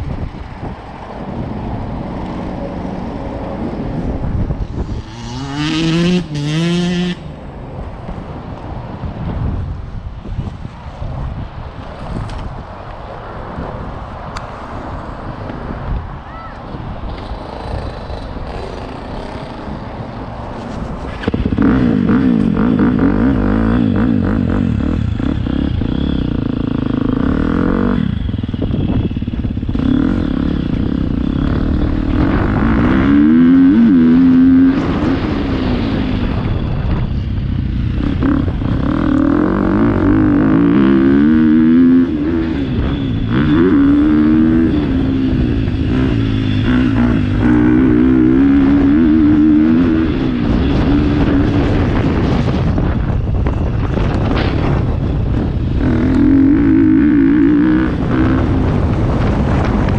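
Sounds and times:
motocross bike engine revving: 4.6 - 7.3, 17.2 - 19.9, 21.2 - 53.0, 53.8 - 59.9.

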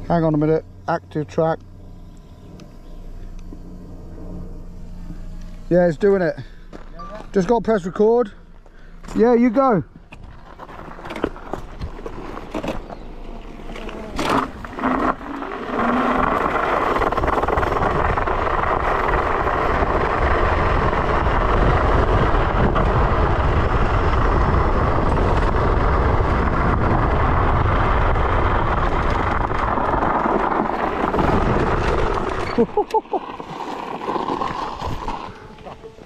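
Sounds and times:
wind rushing on microphone: 15.6 - 32.8.

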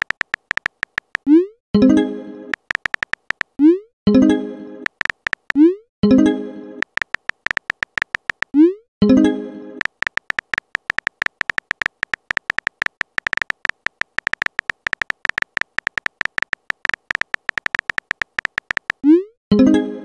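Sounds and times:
keyboard typing ticks: 0.0 - 1.5, 2.5 - 3.8, 4.8 - 5.8, 6.8 - 8.8, 9.8 - 19.2.

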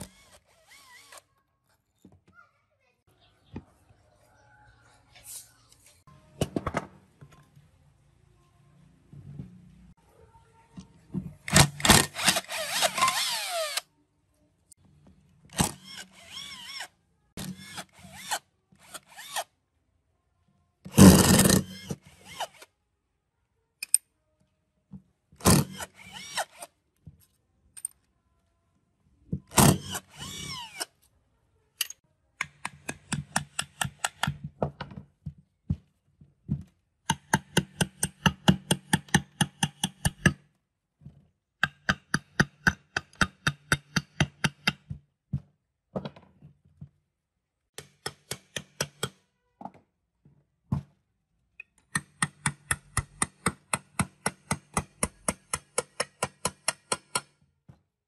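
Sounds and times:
cordless drill bursts: 0.0 - 1.3, 11.5 - 13.8
hammer striking metal chisel: 31.8 - 34.4, 37.1 - 40.4, 41.6 - 45.0, 47.8 - 49.3, 51.8 - 57.4.

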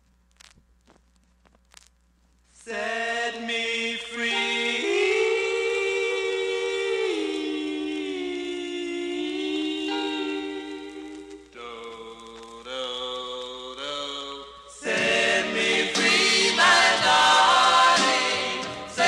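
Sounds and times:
doo-wop vocal group singing harmony: 2.6 - 19.0
faint clicks: 10.6 - 13.6.

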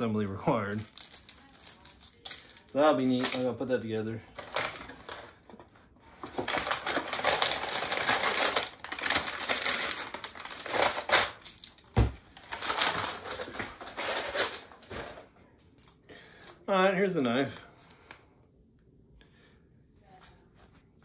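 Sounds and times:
paper rustling and crinkling: 4.4 - 15.2.

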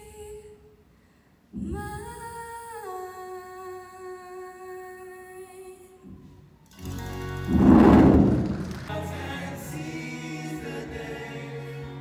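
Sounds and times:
woman singing unaccompanied: 1.6 - 6.1.

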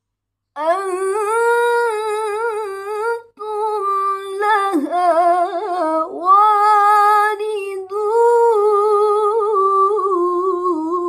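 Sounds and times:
woman reciting melodically: 0.6 - 11.0.

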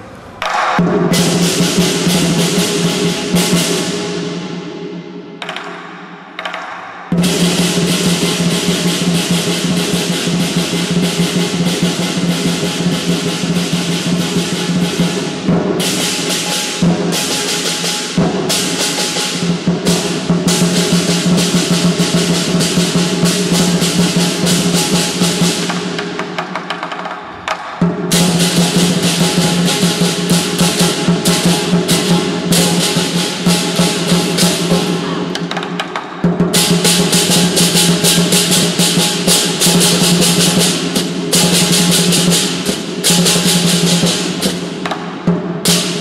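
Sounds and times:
crashing hand cymbals: 0.0 - 46.0
drum beaten in fast rolls: 0.4 - 4.8, 6.4 - 46.0.

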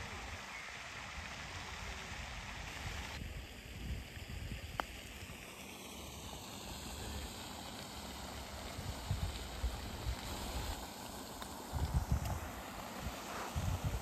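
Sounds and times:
wind rumble on microphone: 1.2 - 4.9, 8.7 - 10.8, 11.7 - 14.0.

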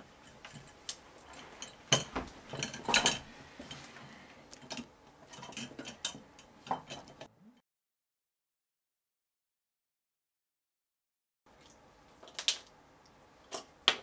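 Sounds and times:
metal and glass clinking: 0.2 - 3.8, 4.6 - 7.3.

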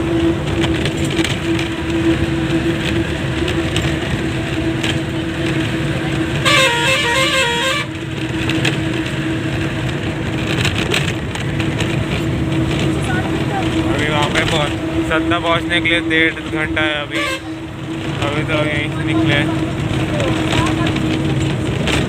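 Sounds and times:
bus engine and road noise: 0.0 - 22.0
musical vehicle horn: 3.9 - 9.1, 12.6 - 18.2.

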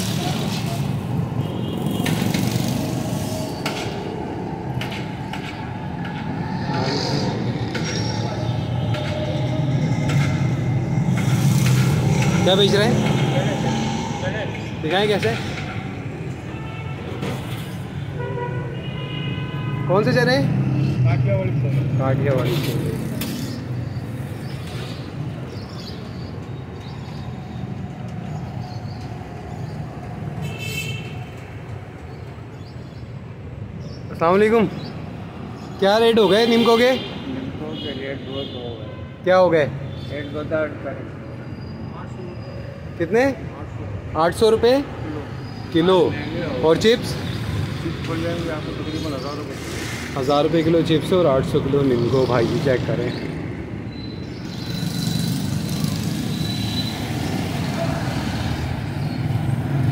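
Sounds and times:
low traffic rumble: 0.0 - 59.9
sharp knocks and clicks: 4.7 - 6.3.

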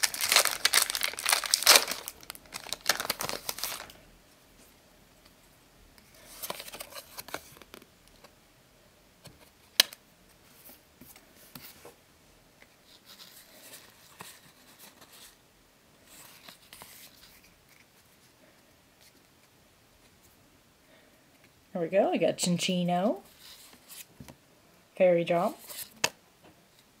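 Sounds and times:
papery rustling of cards: 0.0 - 4.0, 6.1 - 7.9.

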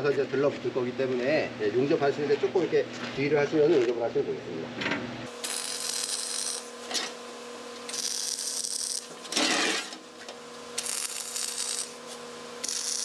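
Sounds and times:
welding arc crackling: 5.3 - 13.0.

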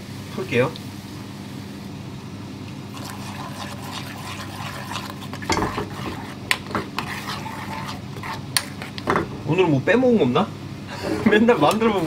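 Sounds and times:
steady low hum: 0.0 - 12.0
spatula scraping metal saucepan: 2.9 - 9.2.

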